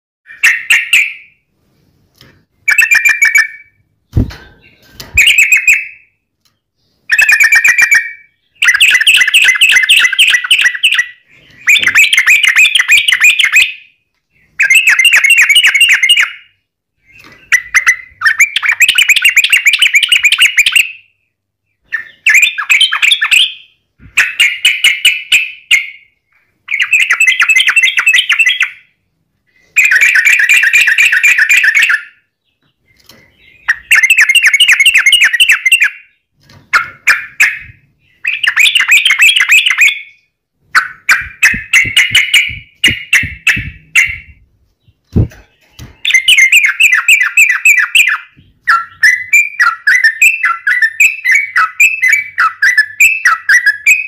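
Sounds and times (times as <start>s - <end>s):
bird chattering song: 0.3s - 1.4s, 2.6s - 54.0s
low thumps: 41.1s - 45.9s.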